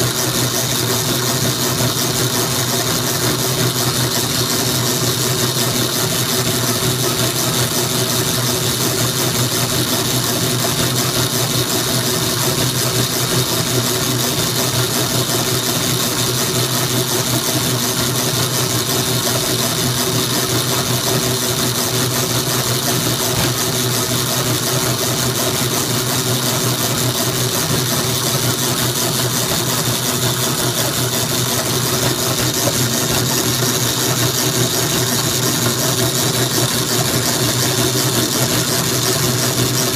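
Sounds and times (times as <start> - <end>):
power hacksaw sawing metal: 17.2 - 39.9.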